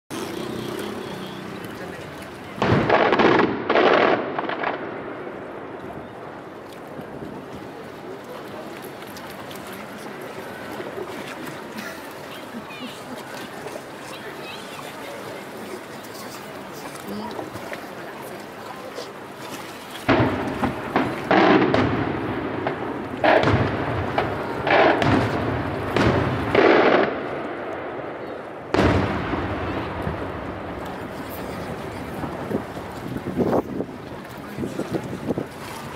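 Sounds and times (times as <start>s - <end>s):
rolling echo: 2.6s - 6.6s, 20.1s - 32.7s.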